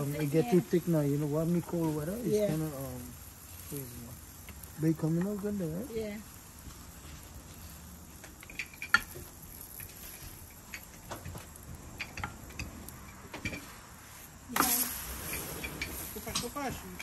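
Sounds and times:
spatula scraping griddle: 0:13.3 - 0:17.0.

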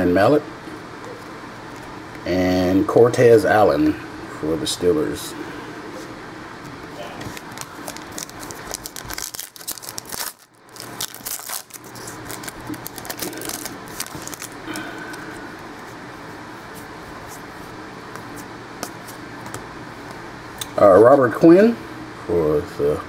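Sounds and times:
cards rustling and clicking: 0:06.8 - 0:15.8
card pack wrapper crinkling: 0:07.2 - 0:15.3.

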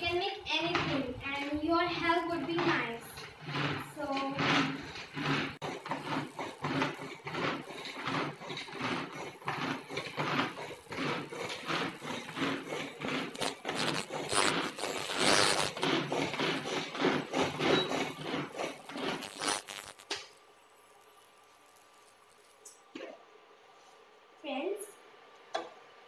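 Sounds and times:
chopper blades spinning through onions: 0:02.8 - 0:20.2
pull-cord chopper cord zipping: 0:03.1 - 0:20.4.

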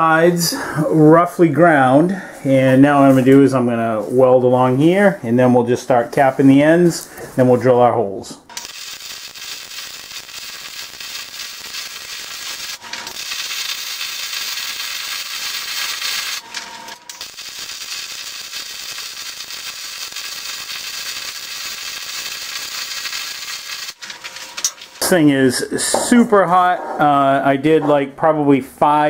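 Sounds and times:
welding arc crackling hiss: 0:08.5 - 0:25.3.

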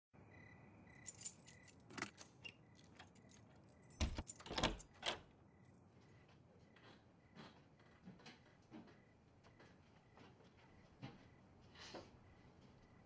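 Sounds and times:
keys jangling: 0:01.0 - 0:05.2.

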